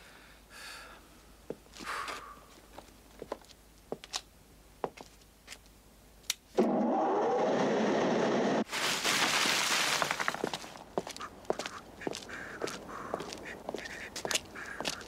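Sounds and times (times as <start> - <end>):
engine-like motor running: 6.6 - 8.6.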